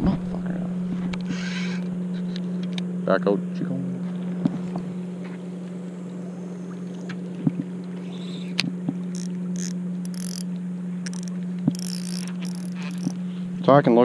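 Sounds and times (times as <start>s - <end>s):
motorboat engine drone: 0.0s - 14.0s
fishing line rustling: 7.6s - 13.4s
sharp clicks: 8.0s - 13.2s.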